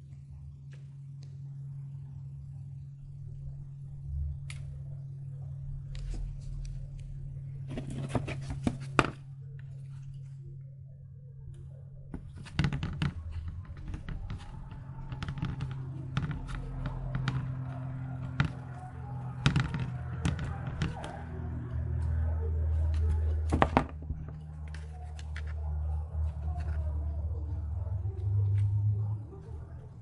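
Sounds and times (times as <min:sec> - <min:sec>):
steady low hum: 0:00.0 - 0:30.0
handling plastic mask: 0:05.8 - 0:10.7, 0:11.5 - 0:30.0.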